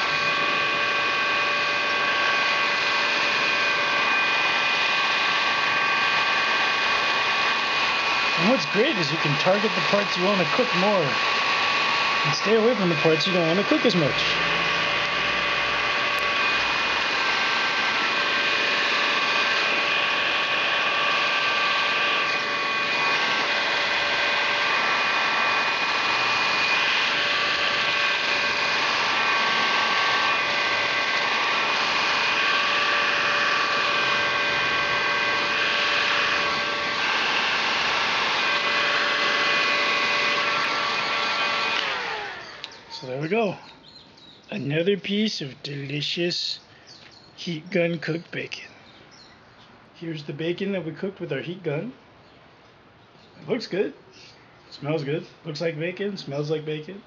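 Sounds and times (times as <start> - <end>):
heat gun fan blowing: 0.0 - 43.7.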